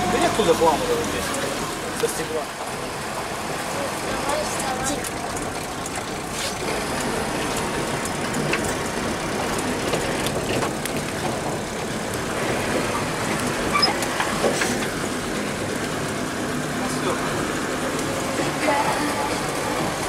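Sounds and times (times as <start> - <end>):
van cabin rumble and hiss: 0.0 - 20.0
rattles and clicks: 4.0 - 20.0.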